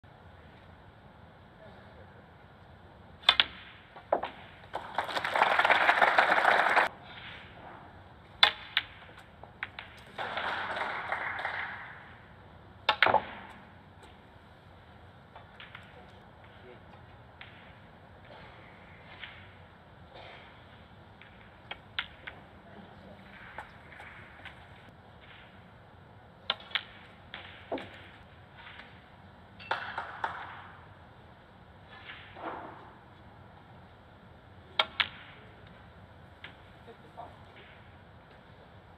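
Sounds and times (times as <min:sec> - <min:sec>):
faint hall room tone: 0:00.1 - 0:38.9
audience applause: 0:04.8 - 0:06.9, 0:10.1 - 0:12.0
snooker balls clicking: 0:08.4 - 0:11.9, 0:21.2 - 0:22.5, 0:26.4 - 0:29.0.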